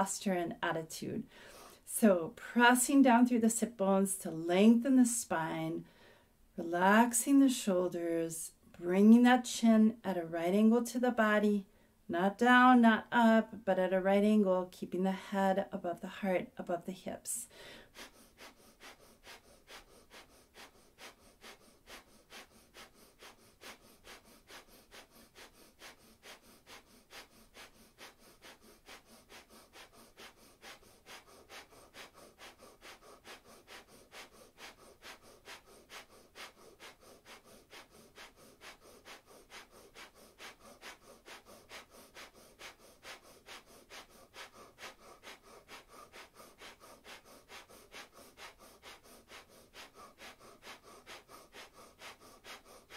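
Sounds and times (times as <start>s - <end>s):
forceful breaths through nose: 1.2s - 1.9s, 5.8s - 6.5s, 17.4s - 52.9s.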